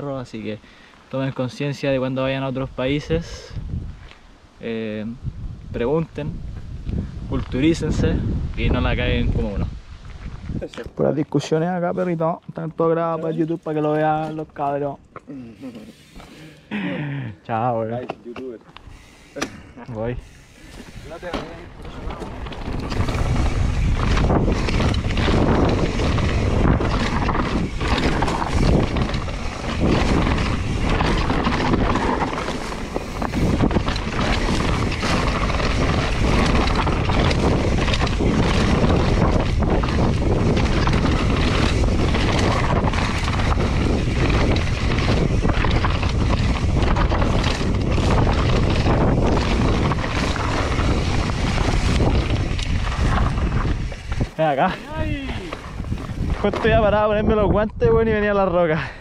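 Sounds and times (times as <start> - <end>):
wind buffeting microphone: 1.3 - 15.0, 18.7 - 59.0
tyres rumbling on gravel: 20.0 - 57.6
bike knocks and rattles: 20.8 - 57.0.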